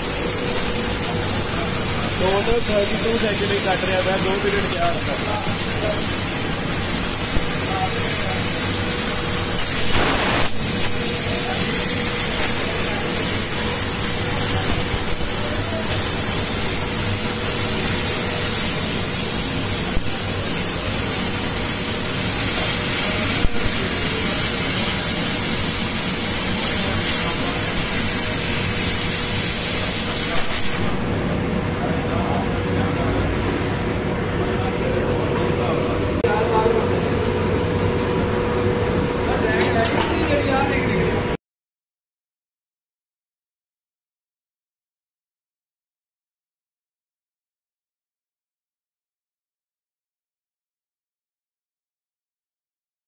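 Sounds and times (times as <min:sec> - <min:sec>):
loud hiss of gas jet: 0:00.0 - 0:31.2.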